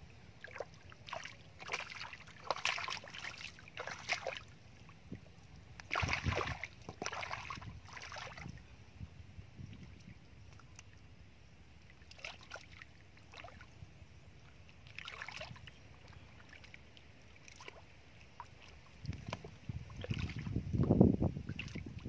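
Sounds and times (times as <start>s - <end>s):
splashes and squelches in mud: 0.4s - 5.0s, 5.8s - 8.6s, 11.9s - 13.8s, 14.6s - 22.0s.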